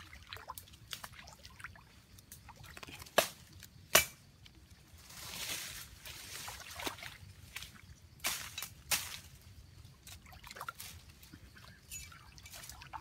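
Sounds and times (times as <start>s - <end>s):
muddy water sloshing and splashing: 0.0s - 3.8s, 4.4s - 13.0s
small drips and clicks: 0.0s - 3.8s.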